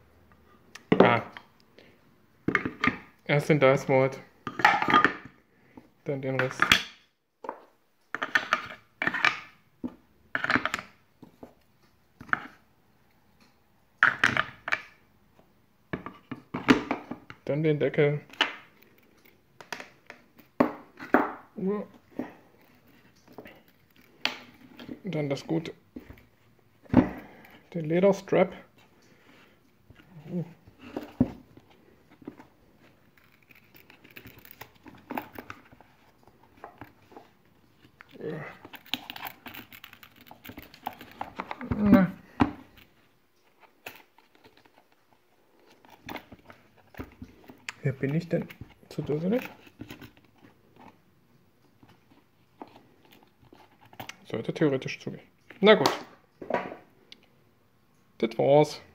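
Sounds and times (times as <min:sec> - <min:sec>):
wooden pieces knocking and clacking: 0:06.3 - 0:11.6, 0:14.0 - 0:15.0, 0:18.2 - 0:26.3, 0:30.8 - 0:42.9
leather strap rubbing and rustling: 0:29.9 - 0:41.8.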